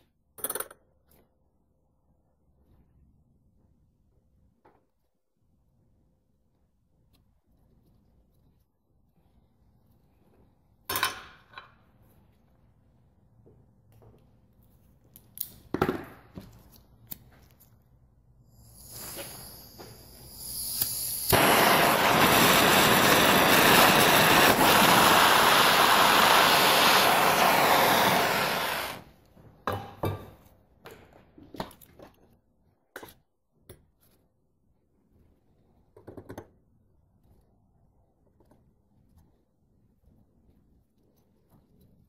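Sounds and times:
blowtorch gas hiss: 18.5 - 29.2
blowtorch flame roaring: 18.7 - 29.2
blowtorch lighting pop: 20.4 - 29.1.

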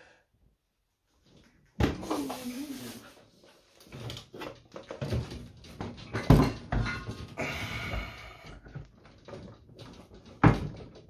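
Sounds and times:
metal parts knocking: 3.9 - 11.0.

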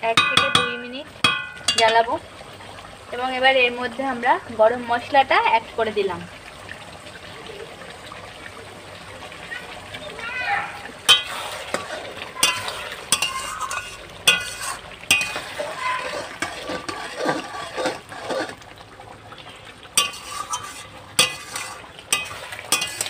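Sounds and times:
curry sizzling: 0.0 - 23.0
metal spatula scraping a pan: 11.1 - 18.6, 20.0 - 23.0.

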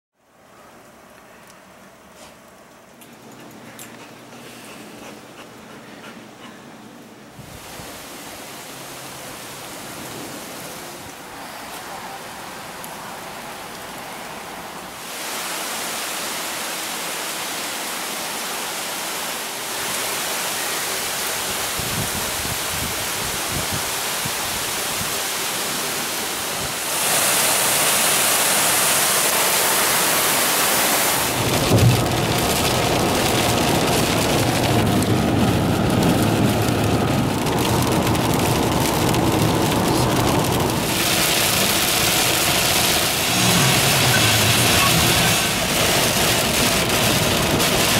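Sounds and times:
heavy rain on pavement: 7.4 - 47.9
rain pelting car windshield: 30.9 - 47.9
car road and engine rumble: 31.2 - 47.9.

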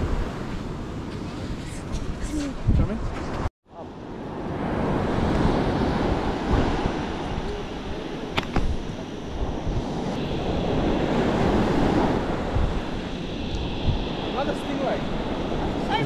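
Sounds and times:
wind buffeting microphone: 0.0 - 16.0
surf breaking on sandy beach: 3.9 - 16.0.

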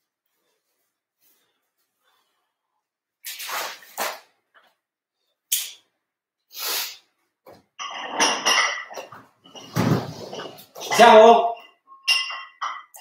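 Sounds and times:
sharp breaths or sniffs: 6.5 - 7.1
rustling and knocking of objects: 7.4 - 11.0.

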